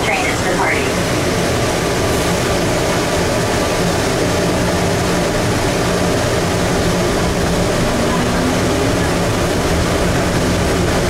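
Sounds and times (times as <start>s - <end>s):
train running through tunnel: 0.0s - 11.0s
low hum: 4.5s - 11.0s.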